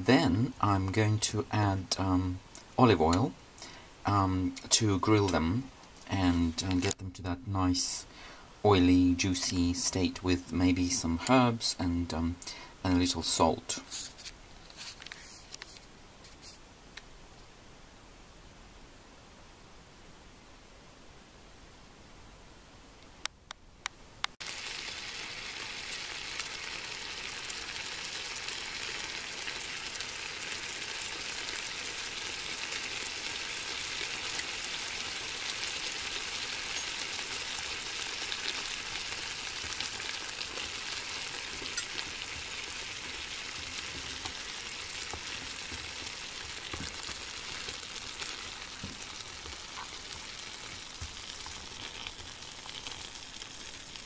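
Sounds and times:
water sizzling in frying pan: 0:24.4 - 0:54.0.

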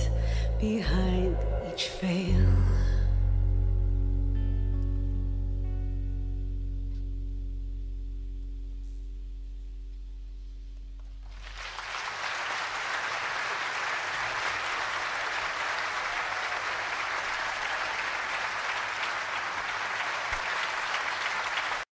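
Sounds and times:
audience applause: 0:11.2 - 0:21.9.

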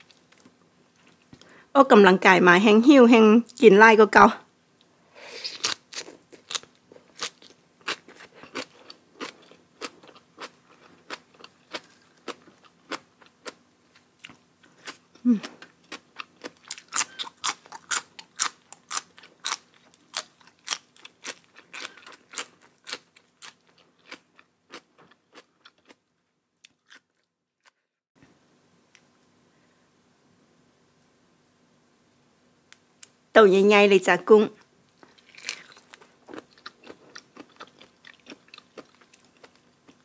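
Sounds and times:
faint steady hum: 0:00.0 - 0:26.8, 0:28.2 - 0:40.0
chewing and crunching food: 0:05.5 - 0:27.8, 0:34.9 - 0:40.0.

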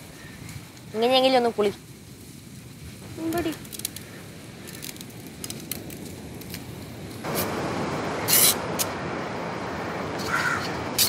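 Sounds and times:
steady rushing noise: 0:00.0 - 0:11.0
crow cawing: 0:10.2 - 0:10.8.

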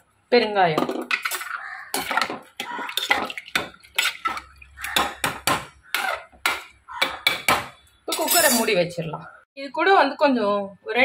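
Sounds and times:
metal spoon scraping steel pot: 0:05.9 - 0:06.6, 0:08.0 - 0:08.8.

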